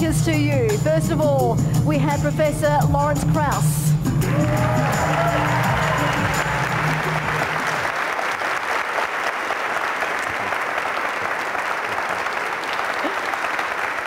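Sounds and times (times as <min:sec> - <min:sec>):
audience applauding: 0:04.2 - 0:14.0.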